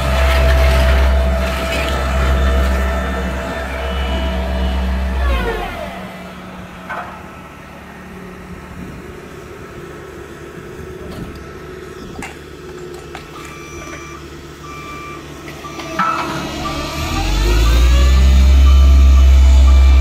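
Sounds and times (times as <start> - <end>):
reversing alarm beeping: 0.0 - 6.1, 13.3 - 20.0
diesel engine idling: 0.0 - 20.0.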